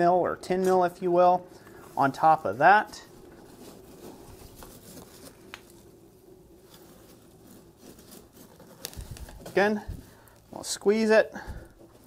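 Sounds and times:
forge fire crackling: 0.0s - 12.0s
low steady hum: 0.0s - 12.0s.

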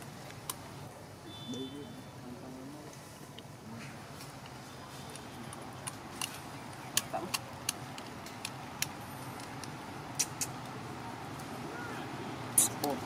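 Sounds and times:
sharp clicks and ticks: 4.4s - 10.8s.

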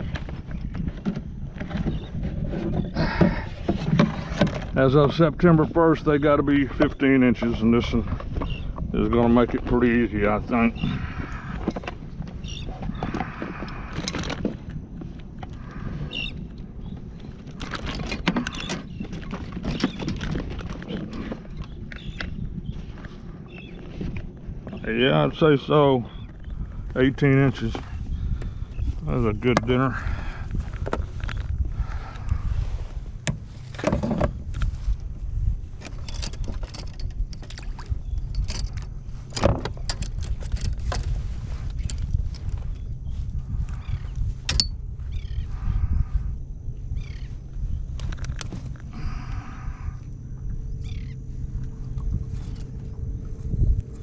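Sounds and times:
clicks and knocks from kayak hull: 0.0s - 4.8s, 11.5s - 15.6s, 17.4s - 22.4s, 30.6s - 31.6s, 33.2s - 34.8s, 35.8s - 42.7s
wind rumbling on microphone: 0.0s - 54.0s.

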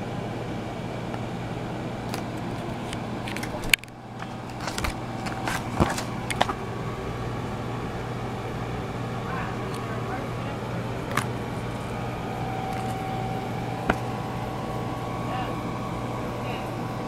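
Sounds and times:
steady low hum: 0.0s - 17.0s
paper pages rustling: 3.3s - 6.6s.

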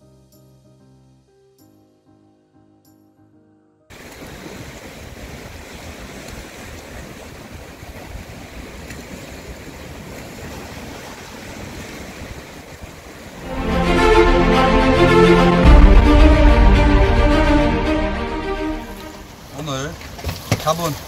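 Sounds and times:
surf washing against rocks: 3.9s - 13.5s, 19.0s - 21.0s
background music: 13.4s - 19.3s.

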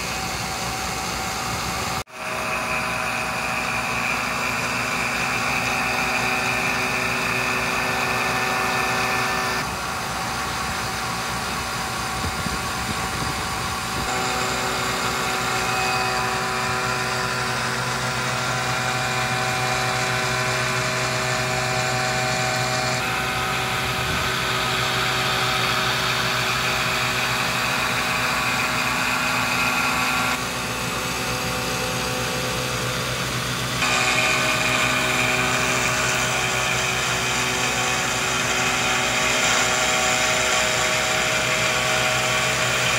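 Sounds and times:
milling machine cutting whine: 0.0s - 42.9s.

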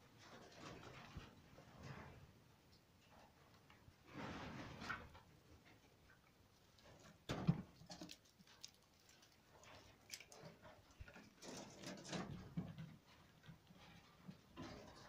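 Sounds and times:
squirrel rustling and scratching: 6.6s - 15.0s.

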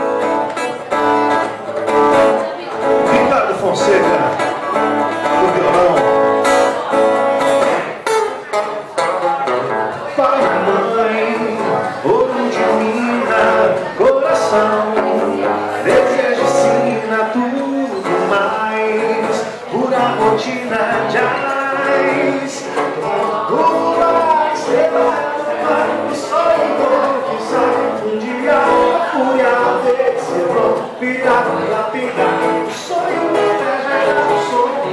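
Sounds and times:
acoustic guitar: 0.0s - 34.9s
two men singing: 10.0s - 34.9s.

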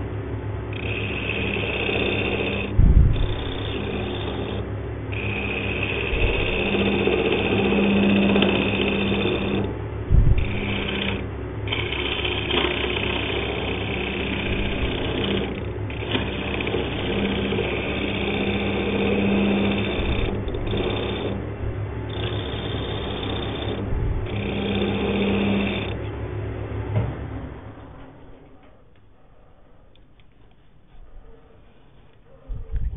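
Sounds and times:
chisel scraping spinning wood: 0.0s - 26.2s
lathe motor hum: 0.0s - 28.4s
low knock: 2.7s - 4.0s, 10.1s - 11.2s.

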